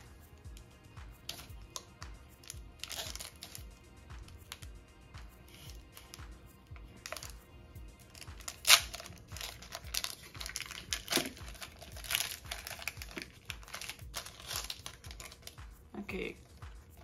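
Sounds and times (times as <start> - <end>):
foil wrapper crinkling and tearing: 2.4 - 4.6, 7.0 - 7.4, 8.0 - 15.6.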